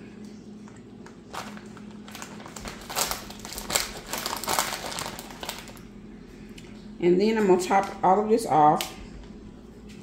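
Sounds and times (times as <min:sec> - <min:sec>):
plastic package crinkling: 0:01.0 - 0:05.9.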